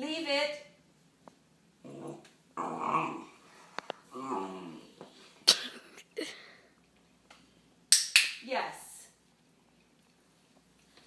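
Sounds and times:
puppy whining grumbles: 0:01.8 - 0:03.4, 0:04.1 - 0:05.0.

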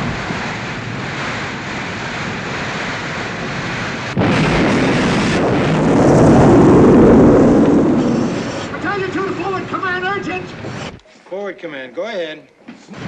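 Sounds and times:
explosion: 0:00.0 - 0:09.7
roar of flames: 0:00.0 - 0:09.7.

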